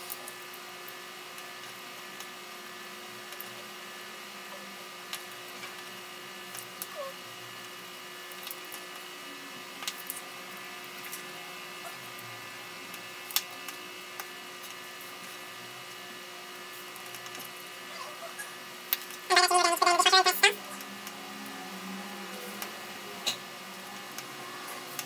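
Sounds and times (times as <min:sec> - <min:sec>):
steady hum: 0:18.7 - 0:25.0.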